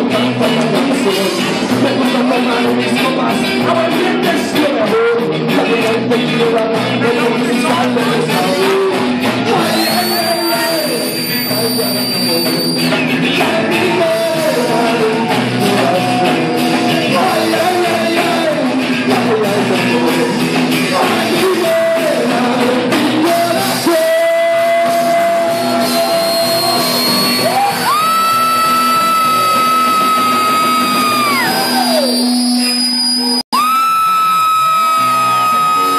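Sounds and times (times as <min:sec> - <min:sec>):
male singer vocals: 0:00.0 - 0:32.1
drum kit: 0:00.0 - 0:35.9
electric guitar: 0:00.0 - 0:35.9.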